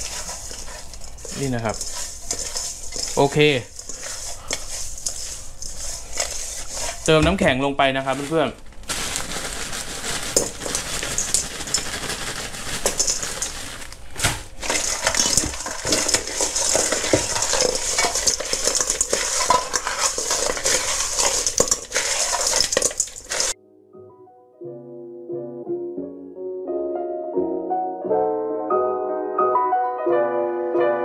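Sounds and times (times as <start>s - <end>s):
ice cubes clattering in steel bowl: 0.0s - 7.2s, 8.1s - 23.6s
soft piano music: 23.6s - 31.0s.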